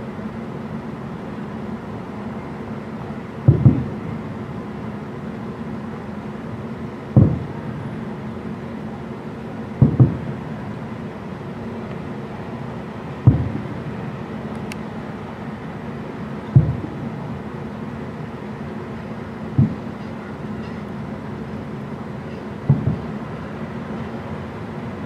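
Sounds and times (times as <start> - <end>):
background rumble: 0.0 - 25.0
distant firework booms: 3.5 - 4.0, 7.2 - 7.6, 9.8 - 10.4, 13.2 - 13.8, 16.5 - 17.0, 19.5 - 19.9, 22.7 - 23.1.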